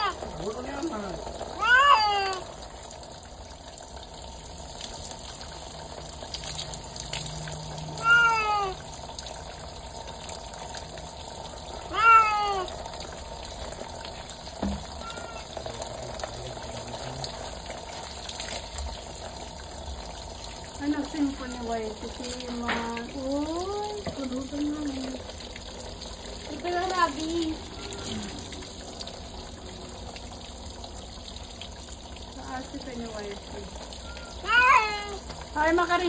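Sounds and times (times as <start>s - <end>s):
cat meowing: 0.0s - 0.4s, 1.5s - 2.6s, 7.9s - 9.0s, 11.8s - 12.9s, 15.0s - 15.6s, 34.1s - 35.3s
water pouring hiss: 0.0s - 36.0s.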